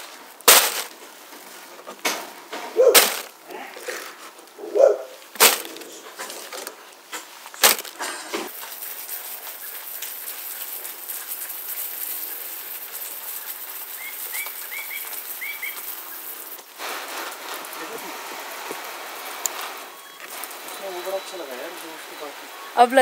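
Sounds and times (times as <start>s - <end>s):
dry leaves crackling into bucket: 0.0s - 23.0s
hose nozzle spraying water: 7.3s - 22.4s
bird chirps: 13.3s - 16.6s.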